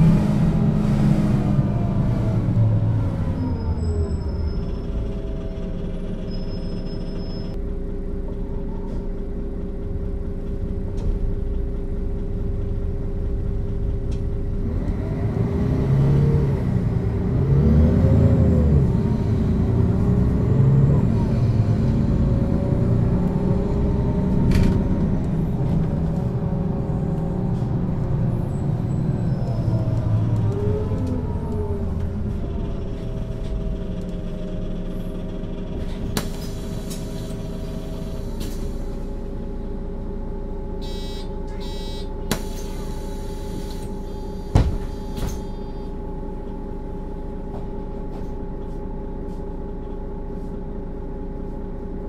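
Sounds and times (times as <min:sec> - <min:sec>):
bus diesel engine drone: 0:00.0 - 0:52.0.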